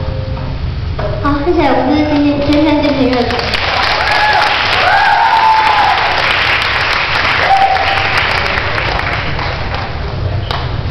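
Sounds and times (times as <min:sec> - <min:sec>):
audience applauding: 0:02.8 - 0:10.1
crowd calls: 0:03.6 - 0:09.4.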